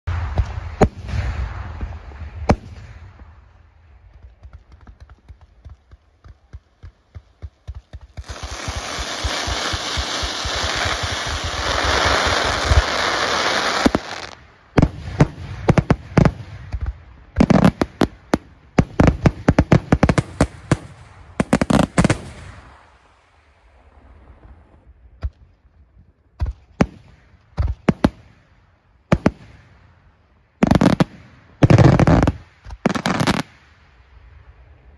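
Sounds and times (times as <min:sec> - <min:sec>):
dense firework hiss: 0:00.1 - 0:03.7, 0:08.1 - 0:16.8.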